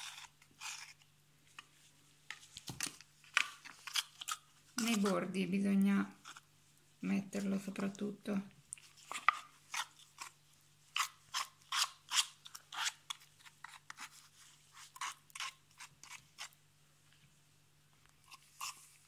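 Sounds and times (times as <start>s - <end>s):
teaspoon scraping wet cement: 0.0s - 1.7s, 3.3s - 5.3s, 6.1s - 6.5s, 8.7s - 16.6s, 18.2s - 19.0s.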